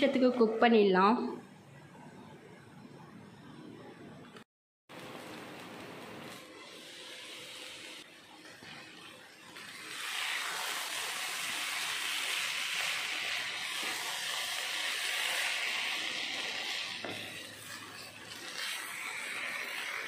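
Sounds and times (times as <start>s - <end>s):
noodles sizzling in a pan: 4.9s - 20.0s.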